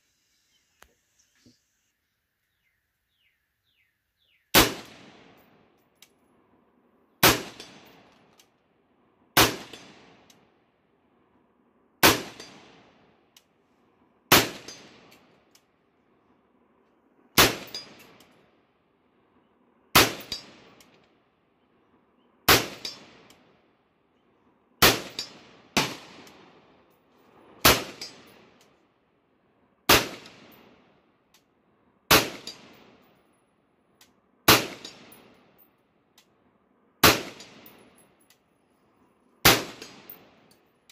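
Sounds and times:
rifle shots with echo: 4.5s - 5.6s, 7.2s - 8.1s, 9.4s - 10.3s, 12.0s - 13.0s, 14.3s - 15.2s, 17.4s - 18.2s, 19.9s - 20.8s, 22.5s - 23.3s, 24.8s - 26.7s, 27.6s - 28.6s, 29.9s - 30.9s, 32.1s - 33.1s, 34.5s - 35.5s, 37.0s - 38.0s, 39.4s - 40.4s.

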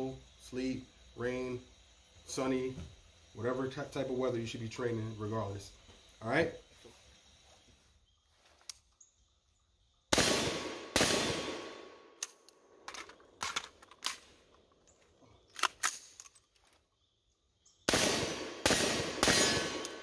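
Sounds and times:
rifle shots echoing: 10.1s - 12.2s, 17.9s - 20.0s
rifle magazine clicks: 12.2s - 14.2s, 15.5s - 16.5s, 19.8s - 20.0s.

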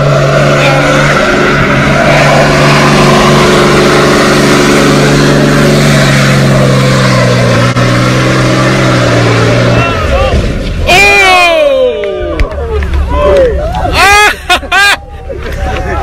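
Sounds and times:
truck engine at high revs: 0.0s - 10.9s.

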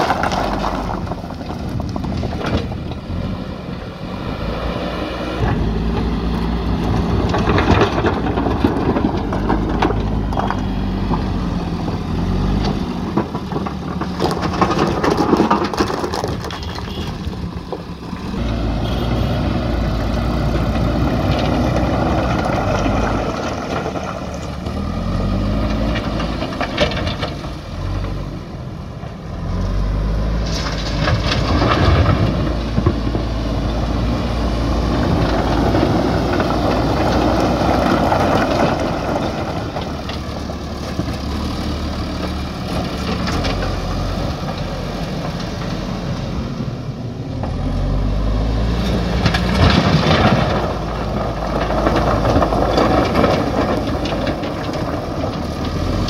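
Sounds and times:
stones clattering against bucket: 0.0s - 2.8s, 6.7s - 18.0s, 49.1s - 56.0s
diesel engine running under load: 0.0s - 56.0s.

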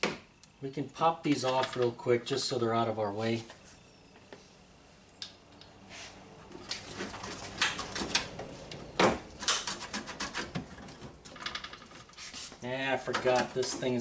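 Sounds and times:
small parts clicking and rattling: 9.4s - 12.2s.

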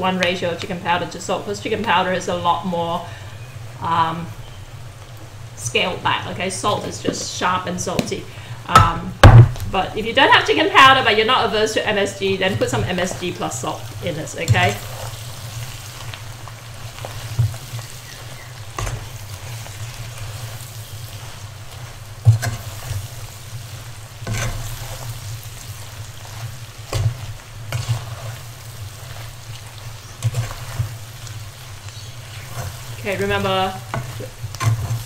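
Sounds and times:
food sizzling in a pan: 0.0s - 35.0s
spatula scraping and knocking pan: 16.9s - 23.5s, 24.2s - 28.4s, 29.1s - 35.0s.

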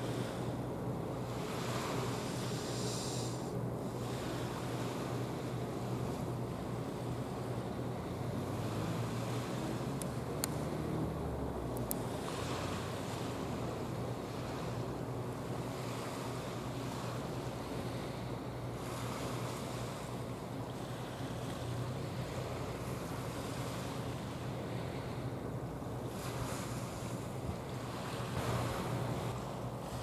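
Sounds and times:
ship engine drone: 0.0s - 30.0s
wind: 0.0s - 30.0s
rushing water: 8.2s - 16.3s.

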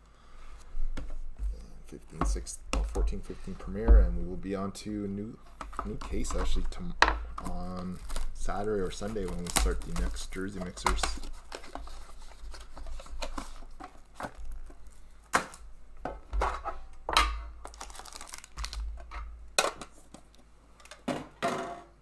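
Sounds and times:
plastic wrapping tearing and crinkling: 7.4s - 15.6s, 17.6s - 19.0s.

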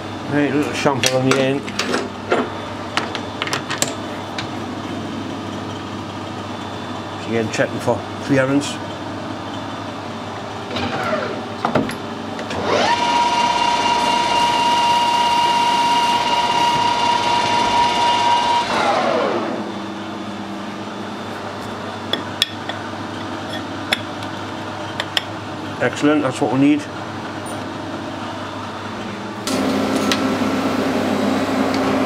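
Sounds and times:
metal lathe whining: 12.5s - 20.0s.

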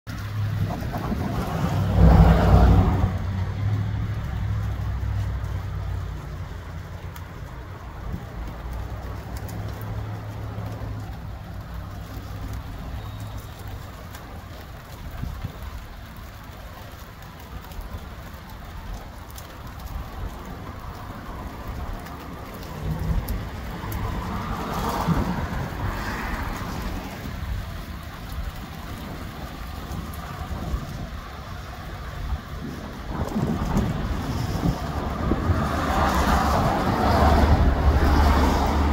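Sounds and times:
rain falling: 0.0s - 38.9s
gusty wind buffeting microphone: 0.1s - 4.2s, 17.7s - 38.9s.

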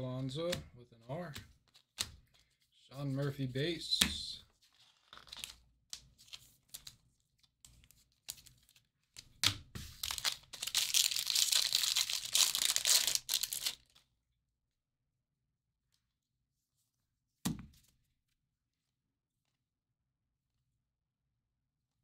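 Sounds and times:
cards being handled: 0.5s - 3.3s, 4.0s - 14.0s
foil wrapper tearing and crinkling: 10.0s - 14.0s.

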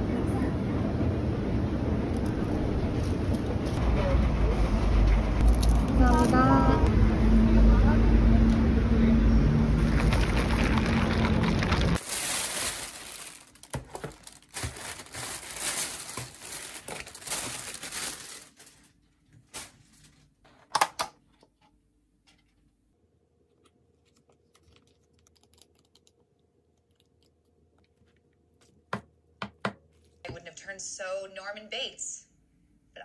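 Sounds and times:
plastic bag rustling: 9.8s - 20.4s.

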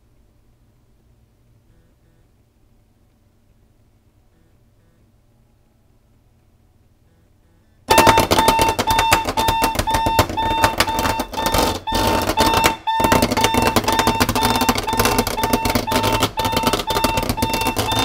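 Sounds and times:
alarm clock beeping: 7.9s - 18.0s
bed shaker buzzing and rattling: 7.9s - 18.0s.

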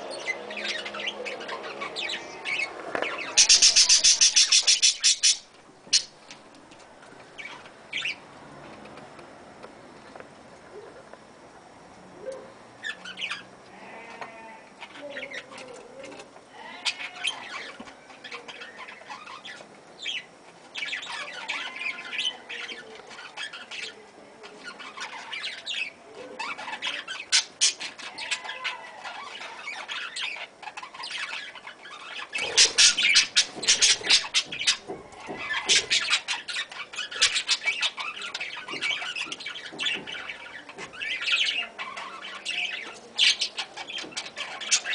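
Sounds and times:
budgerigars chattering: 0.1s - 6.2s, 24.7s - 44.9s.

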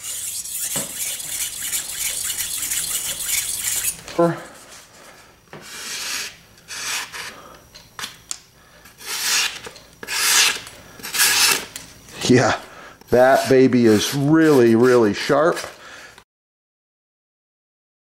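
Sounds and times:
knife scraping on whetstone: 0.0s - 4.2s, 5.6s - 7.3s, 9.0s - 11.7s, 13.1s - 15.7s.

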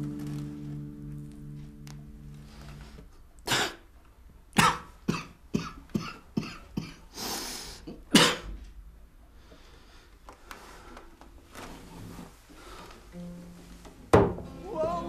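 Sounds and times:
man coughing: 4.6s - 7.1s, 8.0s - 8.6s
noisy breath in: 7.1s - 7.9s, 9.3s - 11.1s.

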